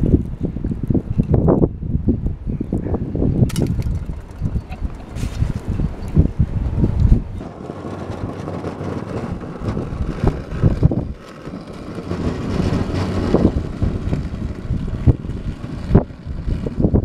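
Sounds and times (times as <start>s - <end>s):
wind buffeting microphone: 0.0s - 17.0s
blade scraping snow: 5.1s - 5.8s, 7.4s - 17.0s
electric garden tractor driving: 7.5s - 17.0s.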